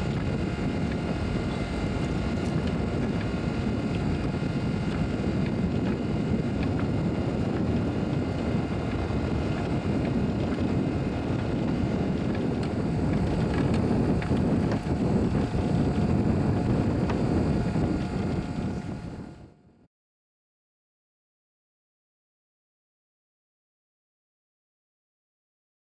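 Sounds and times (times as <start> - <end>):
electric net hauler motor hum: 0.0 - 19.6
wind and water rumble: 0.0 - 19.6.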